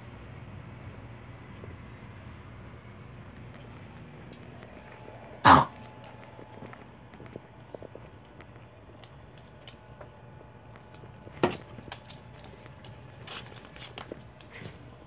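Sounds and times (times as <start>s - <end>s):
dog claws clicking on floor: 5.8s - 15.0s.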